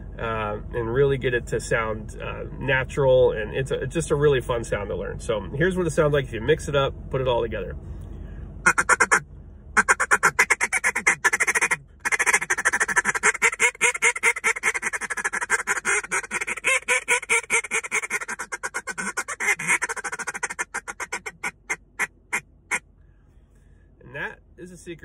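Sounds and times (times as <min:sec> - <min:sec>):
duck call feed chatter: 0:08.7 - 0:09.2, 0:09.8 - 0:21.8.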